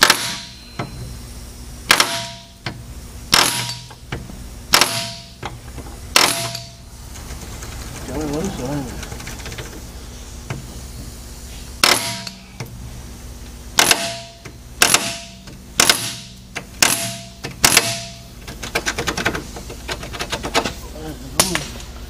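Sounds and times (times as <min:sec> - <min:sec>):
metal-on-metal strikes: 0:00.0 - 0:01.0, 0:01.9 - 0:04.0, 0:04.7 - 0:05.4, 0:06.1 - 0:06.8, 0:11.8 - 0:12.4, 0:13.8 - 0:18.3.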